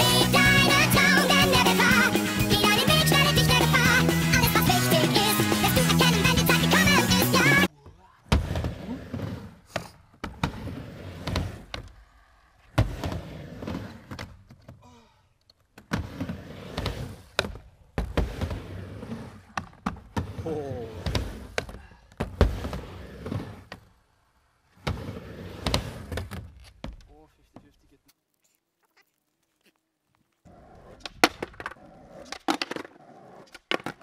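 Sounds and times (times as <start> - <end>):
skateboard wheels rumbling: 0.0 - 7.7, 8.3 - 14.7, 15.8 - 26.7, 30.5 - 34.0
skateboard clacks and knocks: 30.8 - 34.0.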